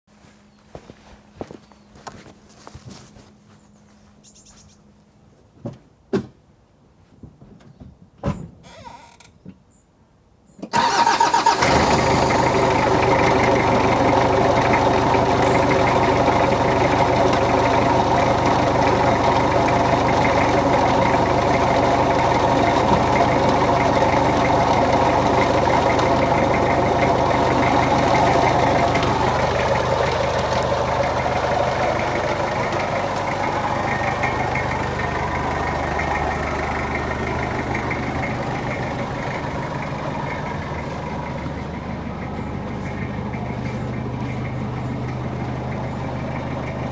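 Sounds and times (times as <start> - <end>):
diesel engine starting and idling: 10.6 - 46.9.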